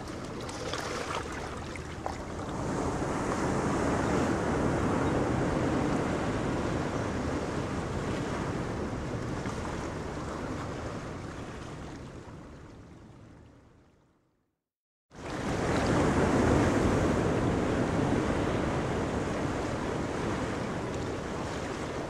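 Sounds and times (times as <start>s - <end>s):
small waves washing: 0.0s - 4.6s, 8.0s - 12.9s, 15.2s - 22.0s.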